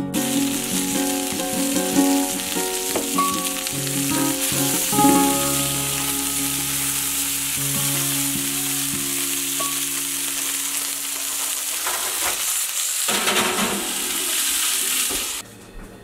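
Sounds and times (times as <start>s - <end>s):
vegetables sizzling in a skillet: 0.1s - 15.4s.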